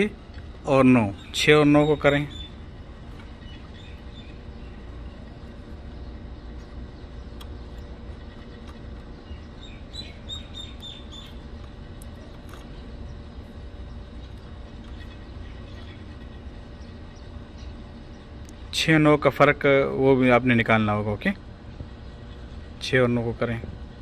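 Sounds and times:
low background rumble: 0.0s - 24.0s
high bird chirps: 1.1s - 2.6s, 3.4s - 5.4s, 6.5s - 11.5s.

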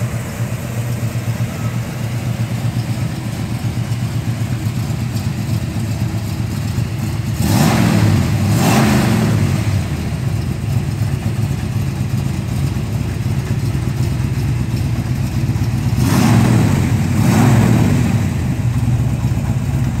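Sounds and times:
car engine idling and revving: 0.0s - 20.0s.

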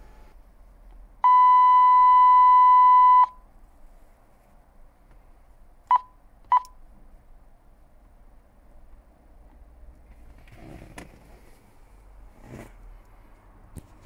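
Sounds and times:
radio long steady beep: 1.2s - 3.3s
short key beeps: 1.2s - 3.4s.

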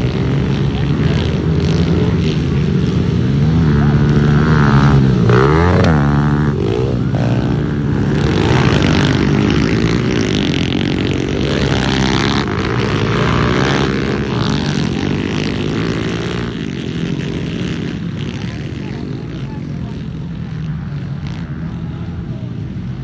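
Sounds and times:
engine revving: 0.0s - 23.0s
pit bike engines racing: 0.0s - 23.0s.

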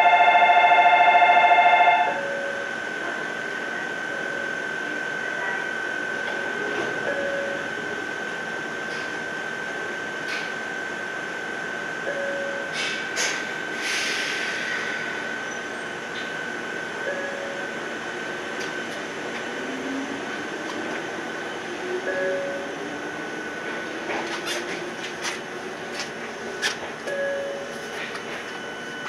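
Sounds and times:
station bell ringing: 0.0s - 3.0s, 3.8s - 8.4s, 12.0s - 13.1s, 15.1s - 18.9s, 21.1s - 24.1s, 27.0s - 29.0s
train high-pitched whine: 0.0s - 29.0s
air hiss: 13.8s - 15.0s.

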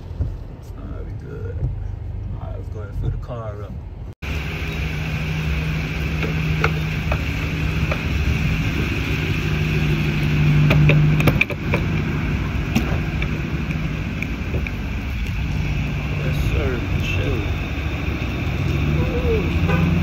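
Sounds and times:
fuel pump humming: 4.2s - 20.0s
fuel pump clicks: 10.6s - 12.1s.

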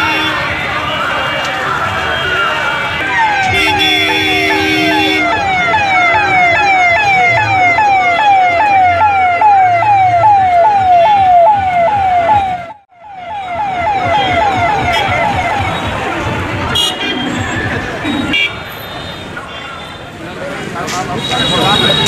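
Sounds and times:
steady horn tone: 0.0s - 0.5s, 3.4s - 5.6s
electronic siren wailing: 3.0s - 15.8s.

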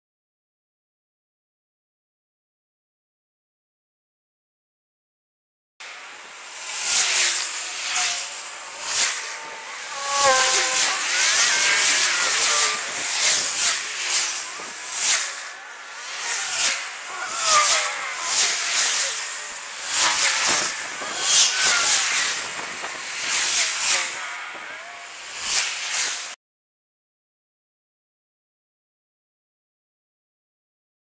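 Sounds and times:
vehicle whines: 6.0s - 24.8s.

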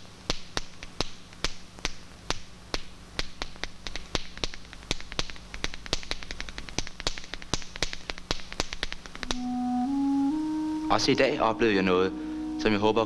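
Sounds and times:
faint low hum: 0.0s - 13.0s
sharp dry clicks: 0.2s - 9.4s.

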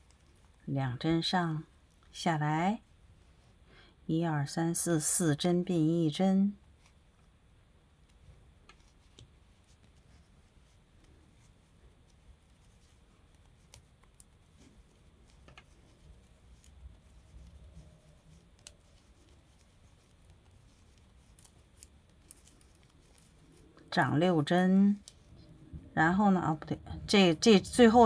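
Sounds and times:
wooden knitting needles clicking: 13.3s - 23.8s.

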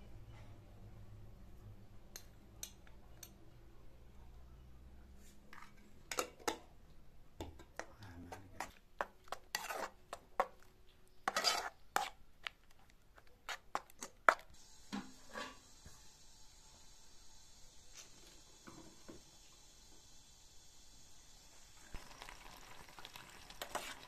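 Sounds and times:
metal spoon clinking and scraping: 2.1s - 3.4s, 8.6s - 10.0s, 11.2s - 12.2s.

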